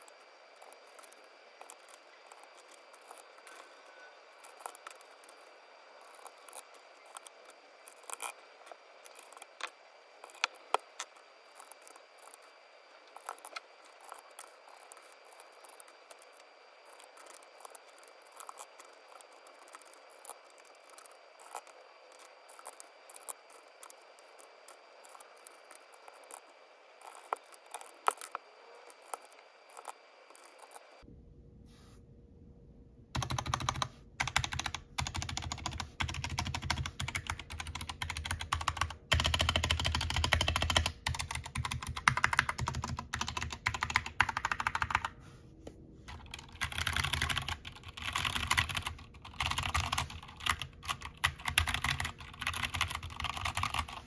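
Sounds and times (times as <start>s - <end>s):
typing on mechanical keyboard: 4.4s - 5.4s, 6.0s - 8.4s, 9.0s - 12.5s, 13.1s - 26.4s, 27.0s - 30.8s, 33.2s - 45.2s, 46.1s - 54.0s.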